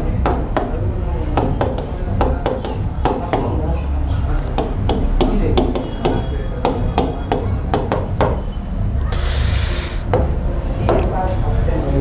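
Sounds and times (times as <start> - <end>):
pen tapping on a board: 0.2 - 3.6, 4.4 - 8.4
scratchy pen stroke: 9.2 - 10.1.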